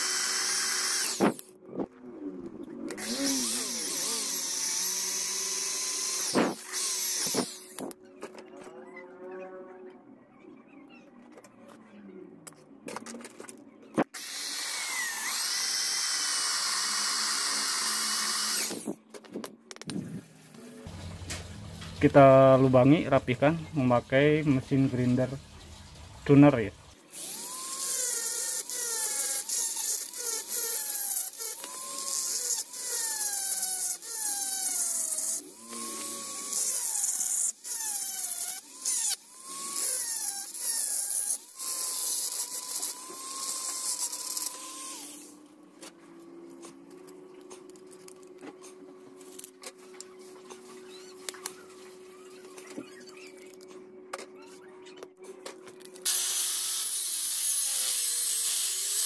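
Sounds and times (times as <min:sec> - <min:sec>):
rotary grinder cutting metal: 0:00.0 - 0:01.6, 0:02.9 - 0:08.0, 0:14.2 - 0:19.0, 0:27.1 - 0:45.4, 0:56.1 - 0:59.0.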